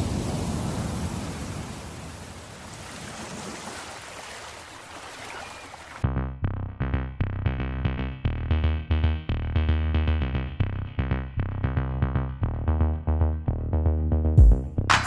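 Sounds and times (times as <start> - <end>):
electronic music with a beat: 6.0 - 15.0.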